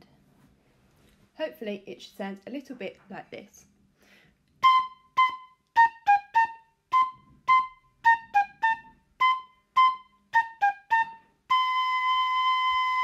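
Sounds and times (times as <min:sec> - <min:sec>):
high-pitched instrument melody: 0:04.6 - 0:13.0.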